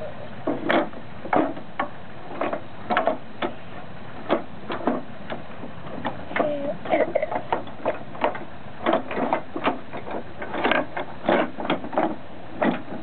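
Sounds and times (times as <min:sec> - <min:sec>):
wooden toys clacking: 0:00.5 - 0:03.6.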